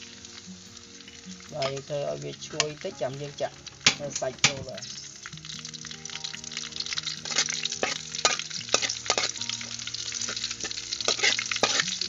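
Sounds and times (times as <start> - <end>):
food sizzling in hot oil: 0.0 - 12.0
spatula scraping metal wok: 6.8 - 12.0.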